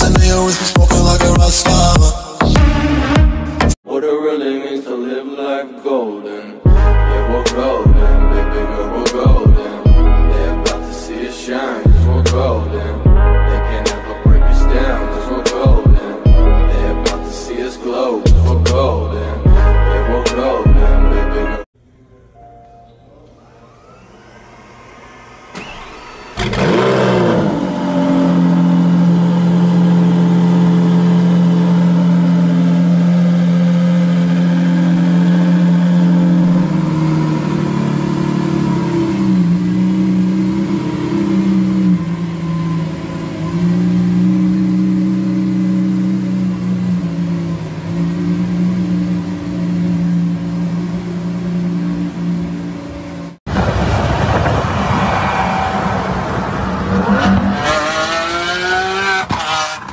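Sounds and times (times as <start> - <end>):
car engine starting and idling: 23.2 - 59.9.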